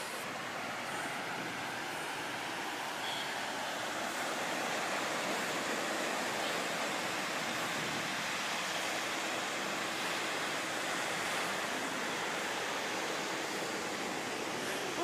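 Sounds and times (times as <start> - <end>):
ocean surf on beach: 0.0 - 15.0.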